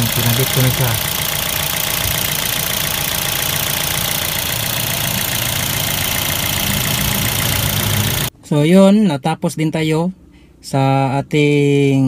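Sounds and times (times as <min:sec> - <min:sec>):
car engine idling: 0:00.0 - 0:08.3.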